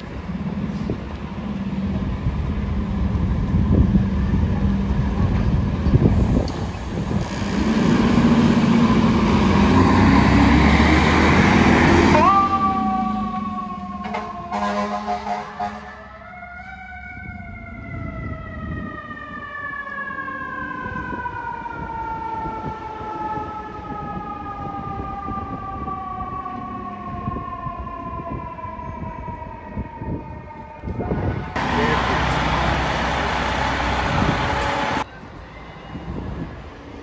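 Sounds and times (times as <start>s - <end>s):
low engine and street rumble: 0.0s - 14.6s, 15.4s - 37.0s
fire engine siren: 7.6s - 35.1s.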